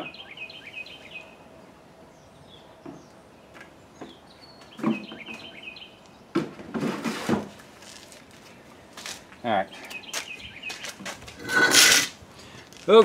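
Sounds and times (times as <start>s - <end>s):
songbird chirping trills: 0.0s - 6.3s, 9.6s - 11.0s.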